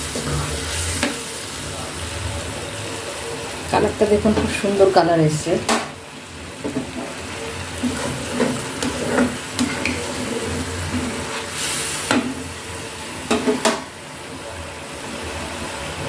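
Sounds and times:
curry simmering: 0:00.0 - 0:16.0
spatula scraping and tapping pan: 0:06.6 - 0:07.2, 0:07.8 - 0:12.4, 0:13.3 - 0:13.9.

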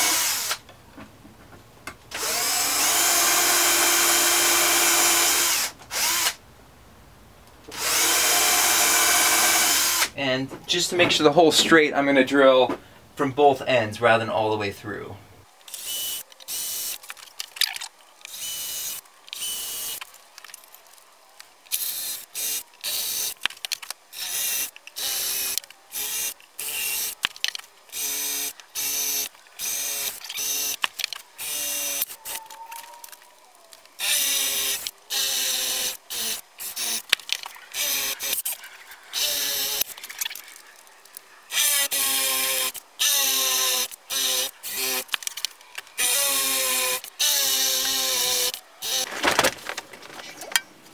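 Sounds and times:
power drill whining: 0:02.1 - 0:06.4, 0:07.7 - 0:10.1, 0:37.7 - 0:39.9, 0:46.0 - 0:49.2.

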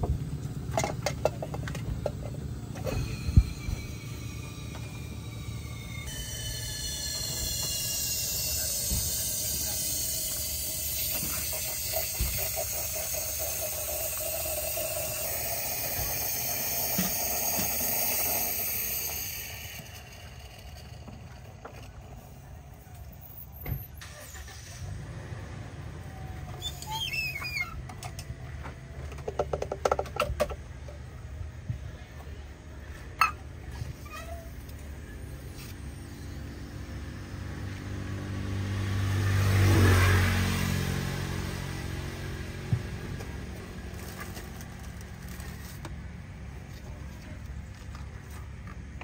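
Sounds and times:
drink fizzing in a glass: 0:07.5 - 0:21.2.

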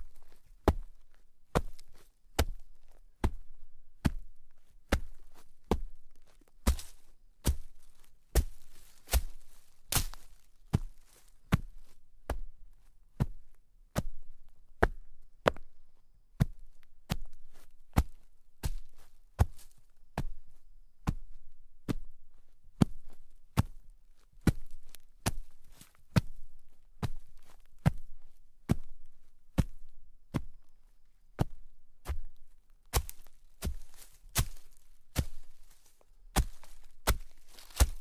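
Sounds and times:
footsteps crunching through snow: 0:06.2 - 0:11.9, 0:18.7 - 0:19.8, 0:32.9 - 0:38.0.

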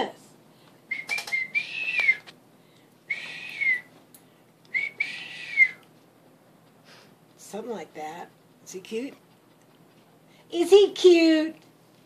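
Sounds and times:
person whistling at a dog: 0:00.9 - 0:02.3, 0:03.1 - 0:03.9, 0:04.7 - 0:05.8.

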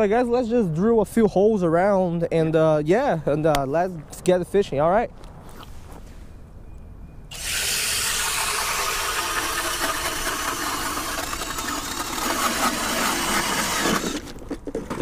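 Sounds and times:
power ice auger grinding ice: 0:07.3 - 0:15.0.

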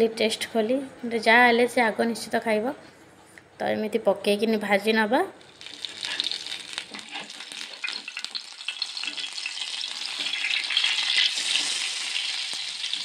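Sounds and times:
fritters sizzling in oil: 0:05.4 - 0:13.0.

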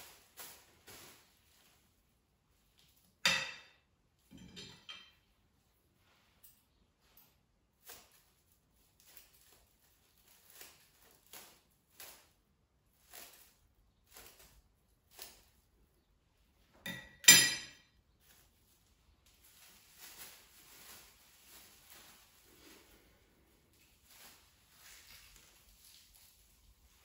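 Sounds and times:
plastic sheet crinkling: 0:00.0 - 0:03.2, 0:07.7 - 0:15.9, 0:18.0 - 0:27.0.

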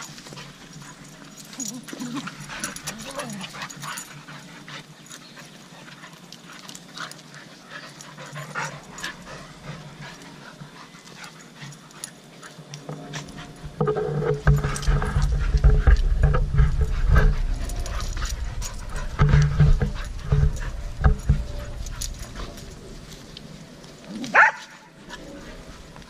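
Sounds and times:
dogs panting and scuffling: 0:00.0 - 0:26.0
low rumble: 0:13.0 - 0:23.8.

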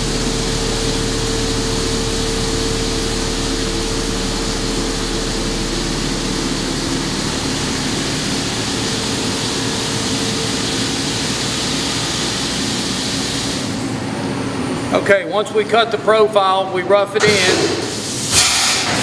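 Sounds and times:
coolant spraying hiss: 0:00.0 - 0:13.8, 0:17.3 - 0:19.0
milling machine humming: 0:00.0 - 0:15.0.

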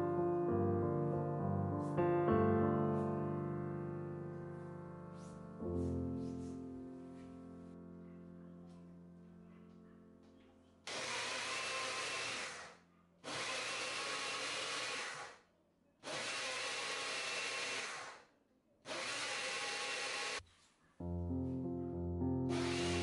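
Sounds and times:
blender motor pulsing: 0:10.9 - 0:15.4, 0:16.0 - 0:18.3, 0:18.9 - 0:20.4, 0:22.5 - 0:23.0.

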